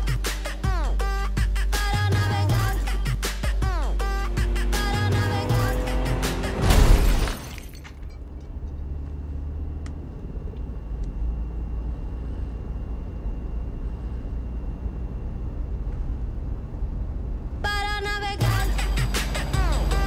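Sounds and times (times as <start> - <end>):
minivan cabin rumble: 0.0 - 20.0
faint high whine: 10.1 - 20.0.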